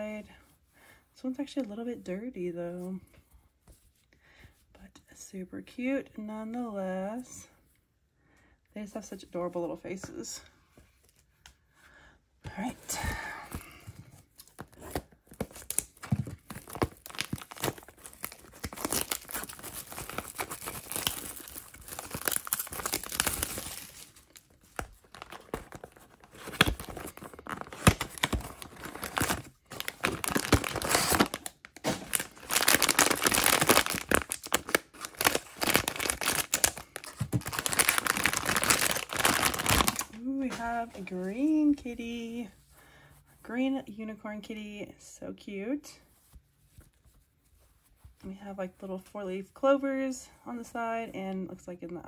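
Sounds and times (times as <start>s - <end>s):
plastic wrapping crinkling and tearing: 14.4s - 41.1s
foil bag crinkling and tearing: 15.4s - 40.6s.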